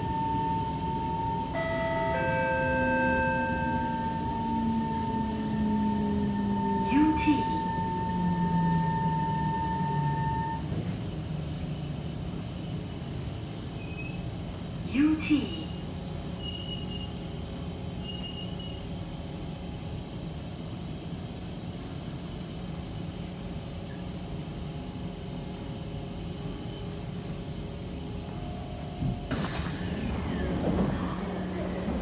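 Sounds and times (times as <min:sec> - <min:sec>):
train carriage hum and rumble: 0:00.0 - 0:32.0
traction motors whining: 0:28.6 - 0:32.0.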